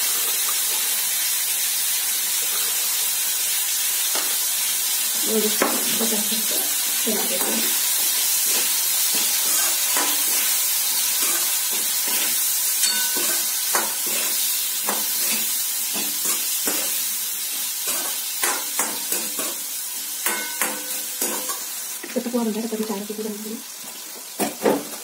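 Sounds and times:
vegetables sizzling in oil: 0:00.0 - 0:25.0
spoon scraping and clinking pan: 0:11.2 - 0:17.0, 0:20.2 - 0:21.7.

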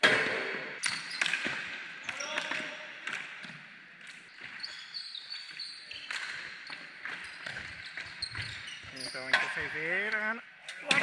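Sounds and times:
shoe squeaks on wooden floor: 0:04.3 - 0:09.8.

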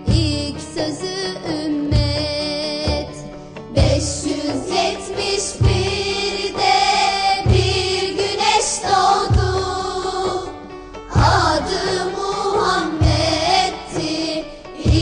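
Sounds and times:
instrumental backing: 0:00.0 - 0:15.0
children's choir singing: 0:03.7 - 0:15.0
low drum beat: 0:03.8 - 0:15.0.

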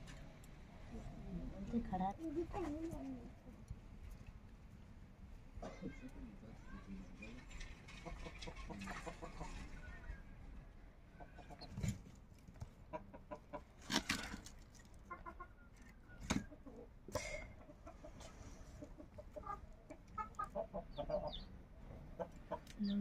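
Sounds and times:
chickens clucking: 0:07.7 - 0:09.9, 0:11.0 - 0:23.0.

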